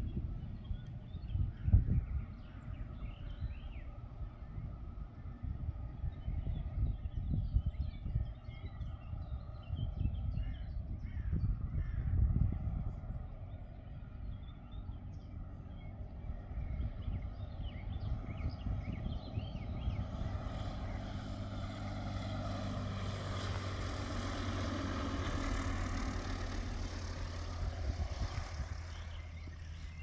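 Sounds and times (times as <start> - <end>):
birds chirping: 0.0 - 30.0
propeller engine running: 0.0 - 30.0.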